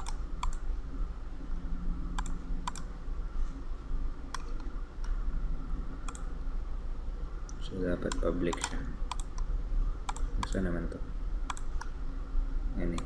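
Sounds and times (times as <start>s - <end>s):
computer mouse clicking: 0.0s - 0.6s, 2.1s - 2.9s, 6.0s - 6.3s, 7.5s - 9.5s, 10.1s - 10.7s, 11.5s - 12.0s
steady low hum: 0.0s - 13.0s.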